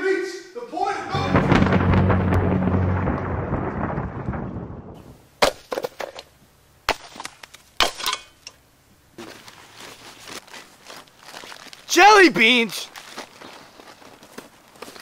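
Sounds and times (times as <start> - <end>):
low rumble: 1.1 - 5.2
sharp cracks: 1.1 - 6.0.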